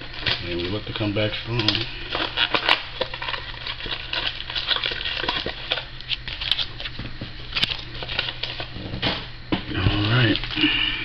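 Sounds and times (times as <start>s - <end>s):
low steady hum: 0.0s - 11.0s
packaging rustling and crinkling: 0.0s - 11.0s.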